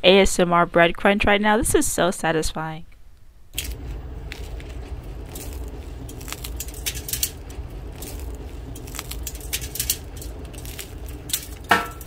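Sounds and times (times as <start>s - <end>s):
toast crunching and crackling: 3.6s - 12.0s.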